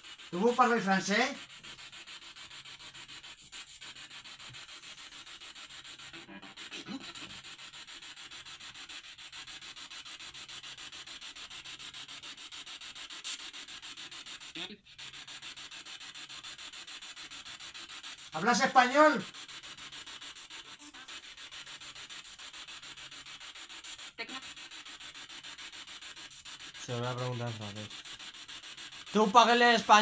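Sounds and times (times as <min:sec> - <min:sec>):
detector alarm scratchy pulses: 0:00.0 - 0:08.8, 0:17.7 - 0:30.0.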